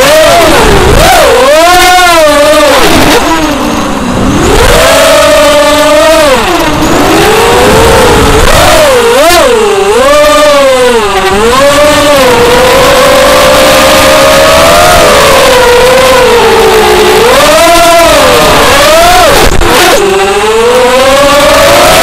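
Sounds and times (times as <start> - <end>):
quadcopter motors whining: 0.0 - 22.0.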